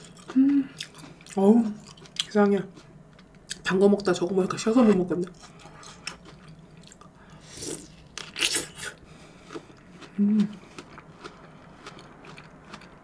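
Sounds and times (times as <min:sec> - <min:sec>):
closed-mouth hum: 0:00.0 - 0:01.8, 0:06.9 - 0:13.0
fruit being bitten and chewed: 0:00.0 - 0:03.7, 0:04.9 - 0:13.0.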